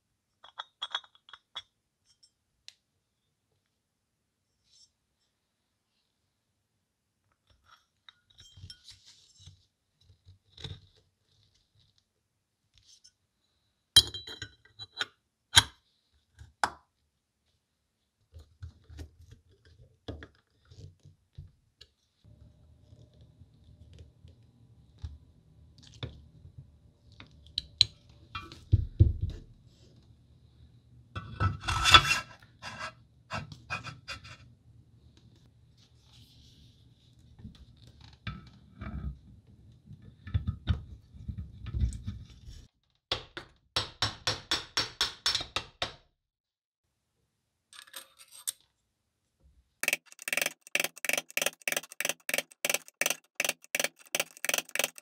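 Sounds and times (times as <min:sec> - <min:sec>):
metal parts scraping and knocking: 0:49.8 - 0:55.0
quick evenly spaced clicks: 0:49.8 - 0:55.0.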